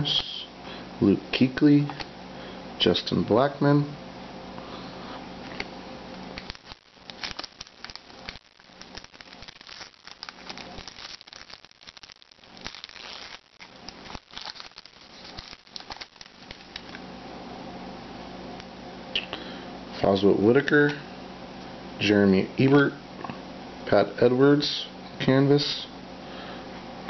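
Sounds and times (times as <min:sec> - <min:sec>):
foil pack crinkling and tearing: 0:06.4 - 0:17.0.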